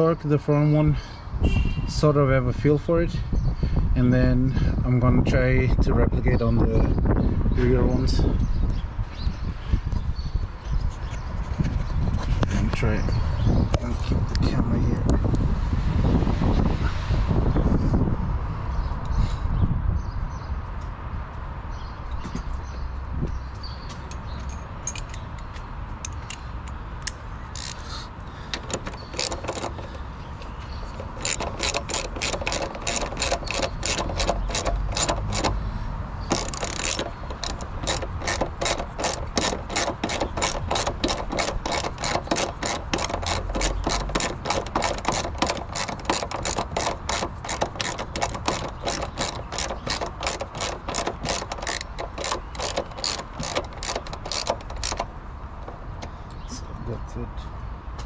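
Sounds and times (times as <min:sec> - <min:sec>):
ratchet wrench clicking: 0:24.1 - 0:27.9, 0:28.5 - 0:56.1.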